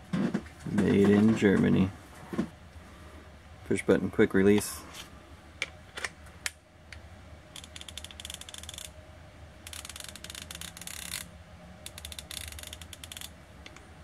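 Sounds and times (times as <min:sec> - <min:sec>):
ratchet clicking rapidly: 0:07.6 - 0:08.9, 0:09.6 - 0:13.3.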